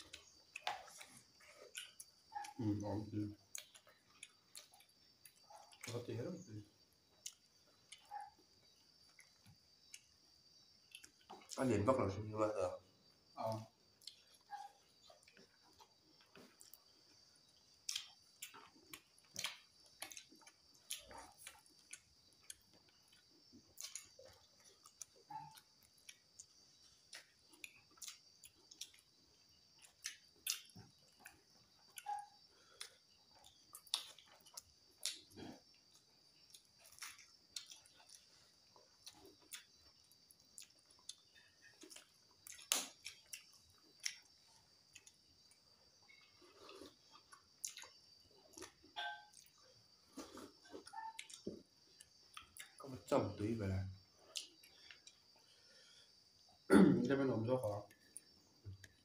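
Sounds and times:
wet chewing smacks: 0.0s - 2.7s, 13.5s - 52.8s
faint high-pitched tone: 49.0s - 49.5s.

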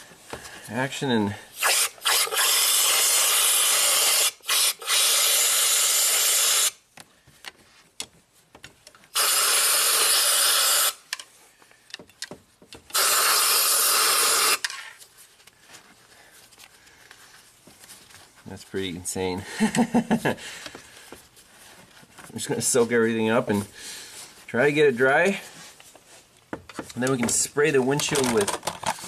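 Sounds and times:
air blow gun hissing: 9.2s - 11.0s, 12.9s - 14.6s.

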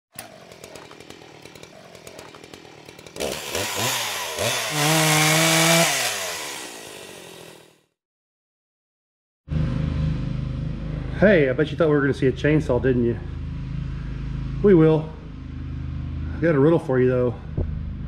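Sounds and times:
chainsaw idling and revving: 0.1s - 8.0s.

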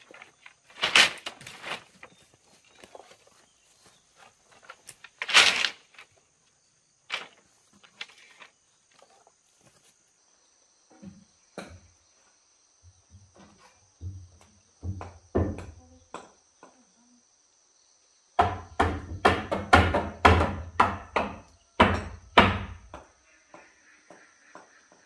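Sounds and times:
insects chirring: 0.0s - 25.0s.

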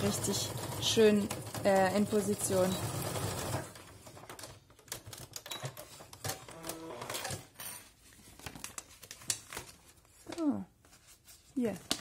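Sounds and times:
fabric and plastic rustling: 3.7s - 12.0s.

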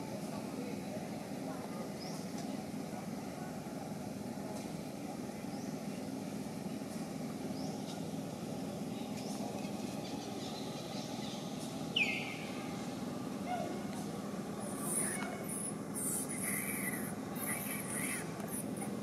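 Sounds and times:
low rumble of traffic: 0.0s - 19.0s
monkey squealing: 14.8s - 18.9s.

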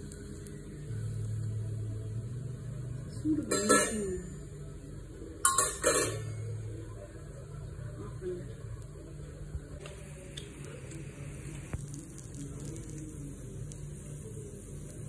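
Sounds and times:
low steady hum: 0.0s - 15.0s
metal kitchenware clattering: 3.5s - 4.2s, 5.4s - 6.4s.

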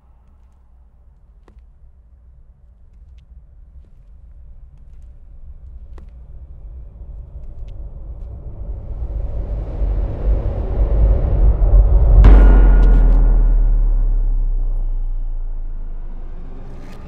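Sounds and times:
low rumbling drone: 6.8s - 17.0s.

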